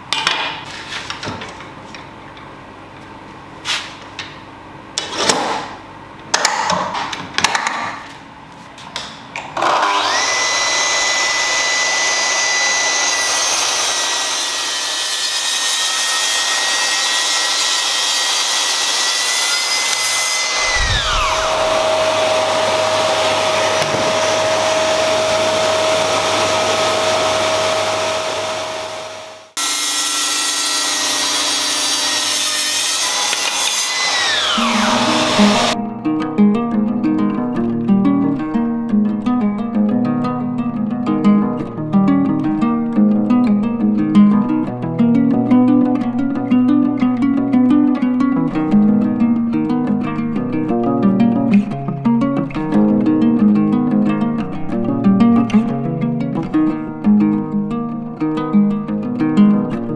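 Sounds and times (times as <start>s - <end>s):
track saw whining: 9.6s - 35.8s.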